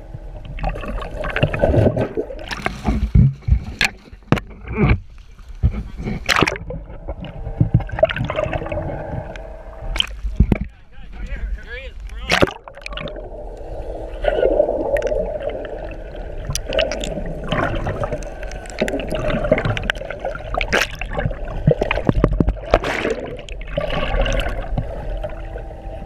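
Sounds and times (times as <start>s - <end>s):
muffled water gurgling and sloshing: 0.0s - 26.0s
sharp clicks and knocks: 9.3s - 10.8s.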